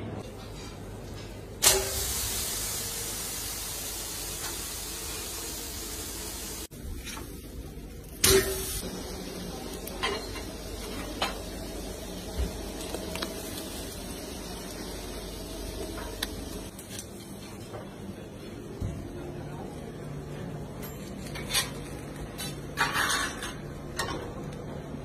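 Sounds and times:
fish sizzling on grill: 1.6s - 17.6s.

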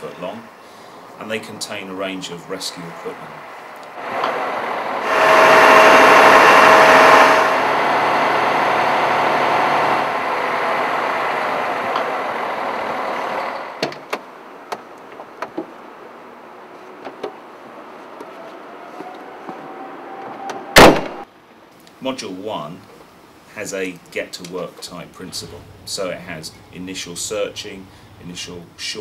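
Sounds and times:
lorry engine and hydraulic whine: 2.8s - 13.8s
sharp bang: 20.7s - 21.3s.

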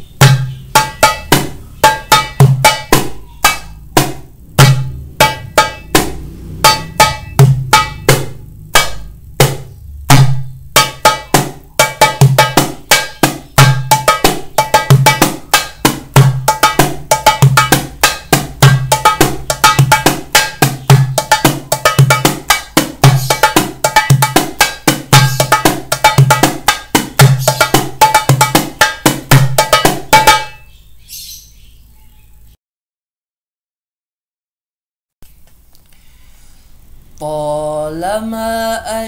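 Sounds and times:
goblet drum played by hand: 0.0s - 30.7s.

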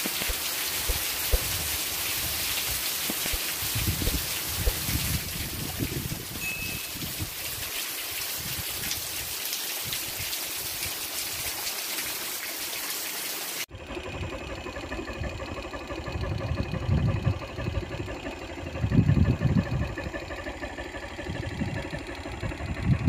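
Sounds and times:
rain pouring: 0.0s - 13.7s
low hum and rumble: 0.2s - 7.6s, 13.7s - 23.0s.

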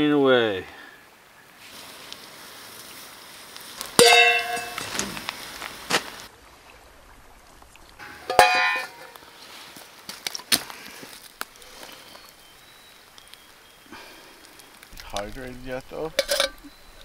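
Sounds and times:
metal pot lid clinking: 4.0s - 4.9s, 8.0s - 9.2s, 16.1s - 16.7s.

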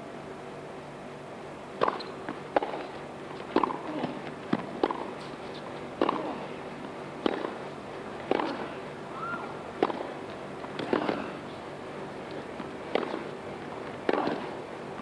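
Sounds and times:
tennis rackets hitting ball: 1.8s - 6.5s, 7.2s - 7.6s, 8.2s - 8.7s, 9.8s - 11.4s, 12.4s - 13.4s, 14.0s - 14.6s.

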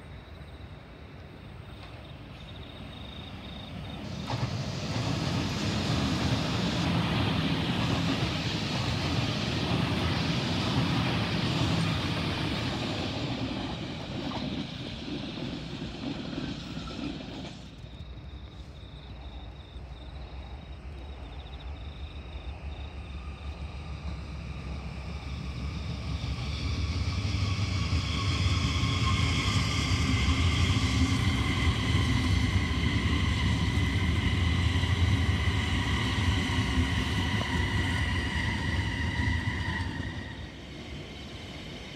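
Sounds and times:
train rumbling past on rails: 0.0s - 41.9s
high insect trill: 0.1s - 12.4s.

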